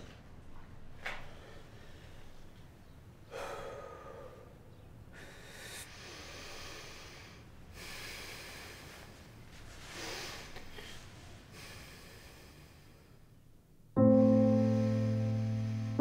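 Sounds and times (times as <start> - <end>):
man breathing hard: 1.2 - 2.6, 3.2 - 13.3.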